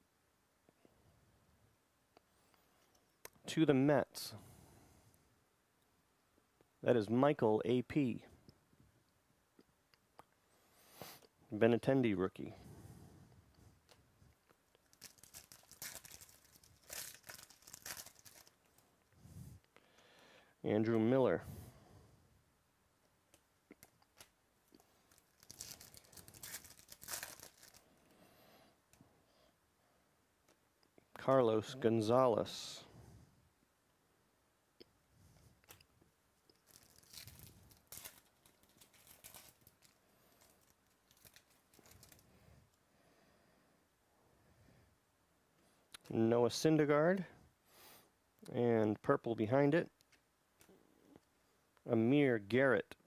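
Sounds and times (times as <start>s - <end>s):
foil wrapper crinkling and tearing: 14.8s - 18.8s, 23.8s - 27.9s, 36.5s - 42.2s.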